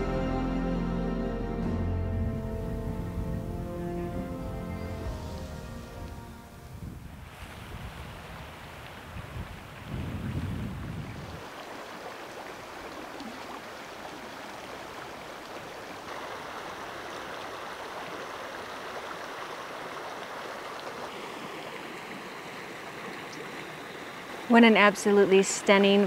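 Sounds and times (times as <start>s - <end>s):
creek water rushing: 0.0s - 26.0s
wind buffeting microphone: 2.2s - 11.6s.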